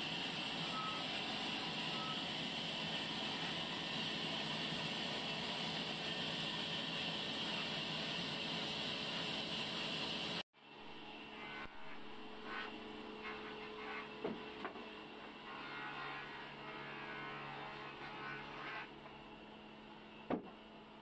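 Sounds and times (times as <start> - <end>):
band saw humming: 11.1 - 20.0.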